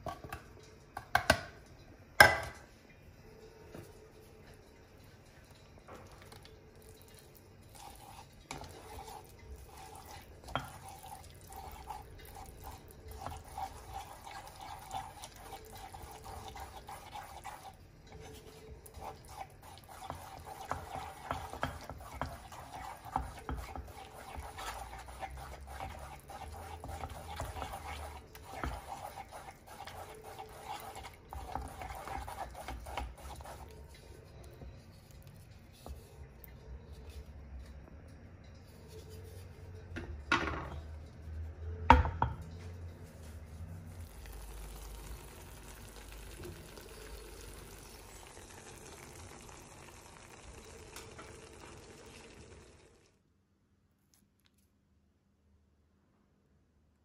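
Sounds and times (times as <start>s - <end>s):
wet sticky stirring: 3.4s - 53.1s
wooden spatula scraping a pan: 7.7s - 37.8s, 38.5s - 45.0s.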